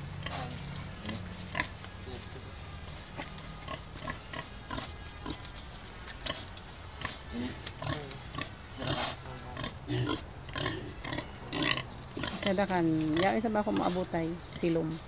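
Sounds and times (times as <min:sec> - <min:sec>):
pig grunting: 0:00.1 - 0:01.8, 0:06.2 - 0:13.4.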